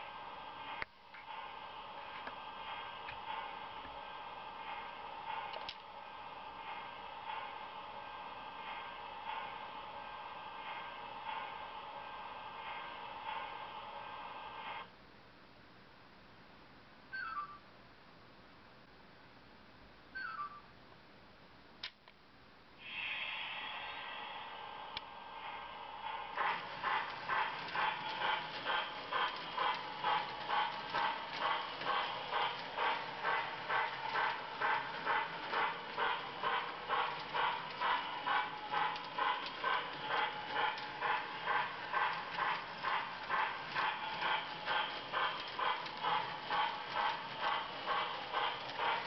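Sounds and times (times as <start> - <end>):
click: 5.5 - 5.9, 21.8 - 22.2
steam hiss through small speaker: 22.8 - 49.0.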